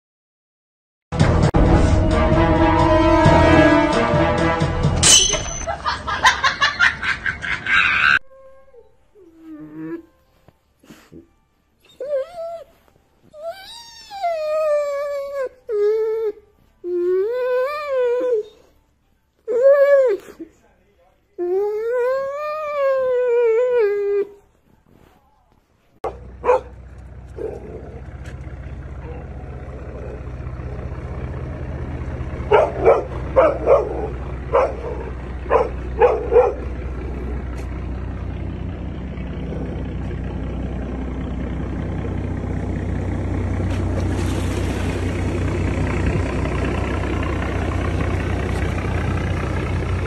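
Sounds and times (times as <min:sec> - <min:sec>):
boat engine droning: 0:01.6 - 0:06.3, 0:26.1 - 0:50.0
dog barking: 0:26.0 - 0:26.8, 0:32.4 - 0:36.8
churned water rushing: 0:43.9 - 0:45.6.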